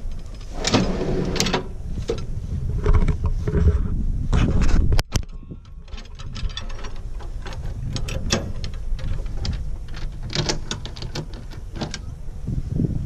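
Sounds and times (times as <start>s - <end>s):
small metallic clicks and rattles: 4.7s - 12.1s.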